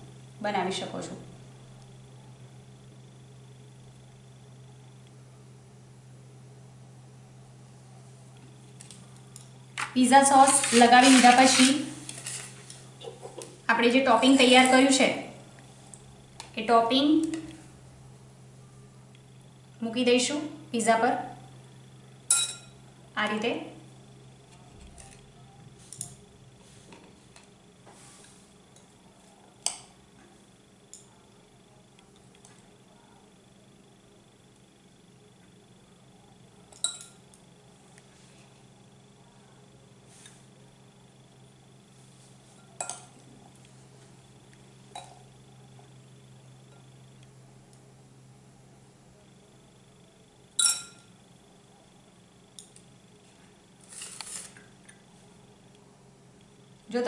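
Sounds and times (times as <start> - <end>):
faint steady hum: 0.0 - 57.0
rustle on paper plate: 10.4 - 12.9, 27.9 - 28.5
spoon clinking glass bowl: 22.3 - 22.8, 36.8 - 37.2, 42.6 - 43.1, 50.6 - 51.1.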